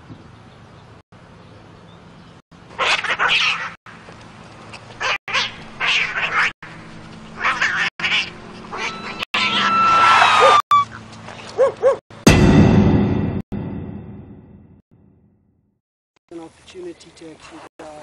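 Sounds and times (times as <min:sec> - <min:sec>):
cats screeching and hissing: 0:02.8 - 0:03.8, 0:05.0 - 0:06.5, 0:07.4 - 0:10.6.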